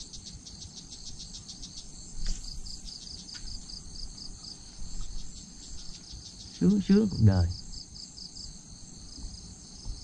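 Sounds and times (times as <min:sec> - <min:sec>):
insect chirping: 0:00.0 - 0:10.0.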